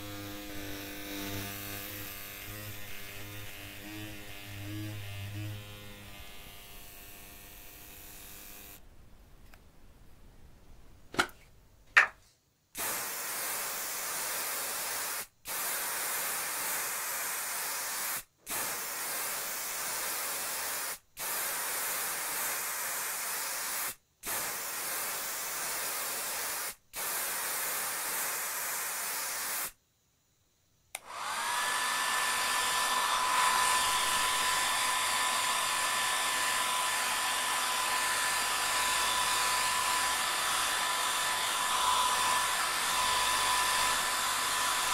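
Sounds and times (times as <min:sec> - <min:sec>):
vacuum cleaner motor whine: 0:31.0 - 0:44.9.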